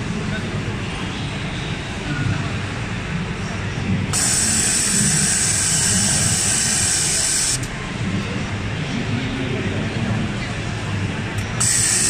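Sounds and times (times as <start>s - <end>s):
sewing machine whining: 4.1s - 7.7s, 11.6s - 12.0s.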